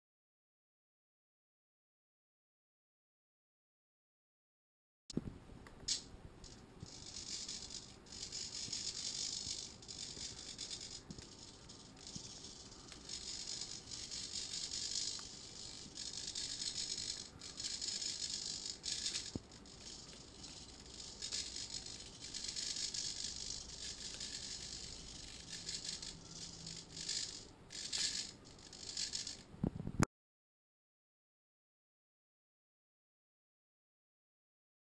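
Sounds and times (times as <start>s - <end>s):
servos whirring: 6.8s - 29.4s.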